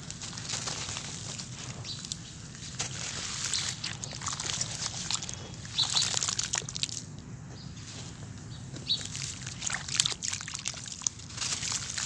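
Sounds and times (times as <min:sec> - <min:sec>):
hand sloshing through wet slurry: 0:02.8 - 0:07.1, 0:08.9 - 0:12.0.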